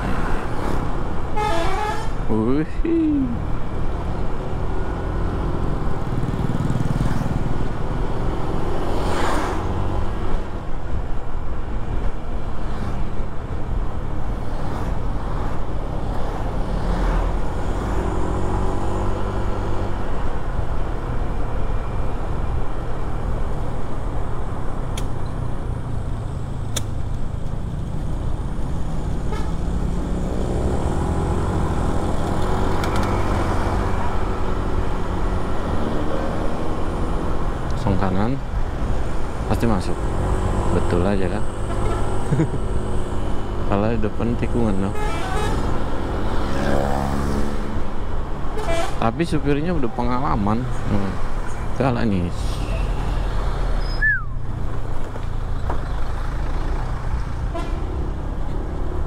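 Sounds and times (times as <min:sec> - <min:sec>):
road noise: 0:00.0 - 0:59.0
horn toots: 0:29.3 - 0:29.7, 0:57.5 - 0:58.0
bus engine running: 0:40.0 - 0:43.8.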